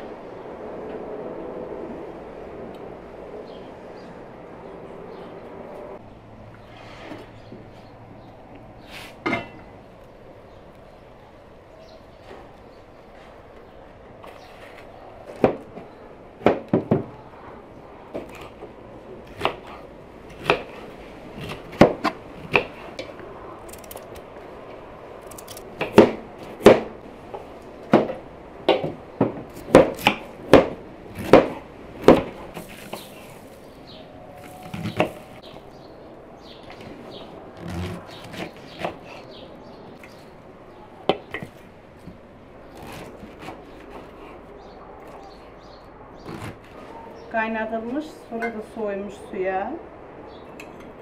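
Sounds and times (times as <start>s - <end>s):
knives chopping on wooden boards: 15.2s - 15.8s, 16.4s - 17.1s, 19.3s - 23.0s, 25.4s - 27.0s, 27.8s - 33.1s.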